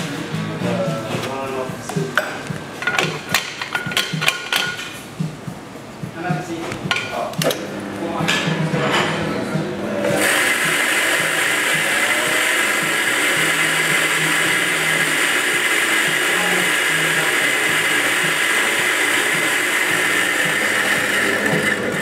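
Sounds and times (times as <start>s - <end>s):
electric coffee grinder grinding beans: 10.0s - 22.0s.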